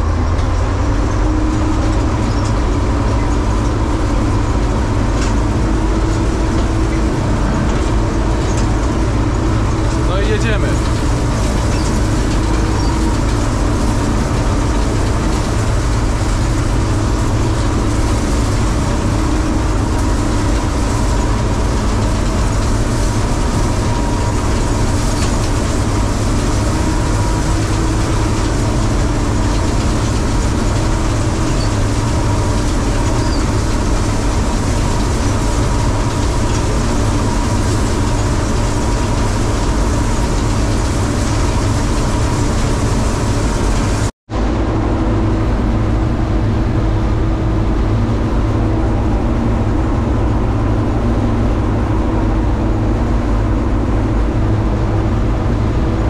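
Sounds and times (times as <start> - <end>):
combine harvester drone: 0.0 - 56.0
high machinery whine: 0.0 - 56.0.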